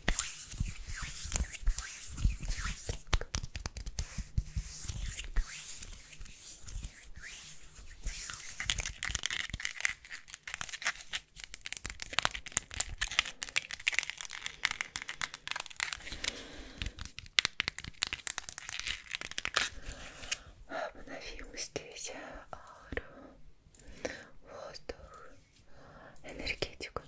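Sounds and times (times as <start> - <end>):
crinkling and crackling: 7.7 - 20.5.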